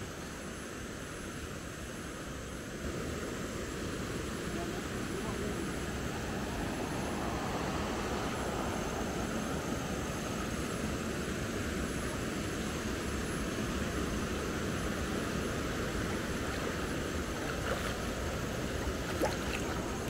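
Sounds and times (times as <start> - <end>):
river rushing over rocks: 11.9 - 20.0.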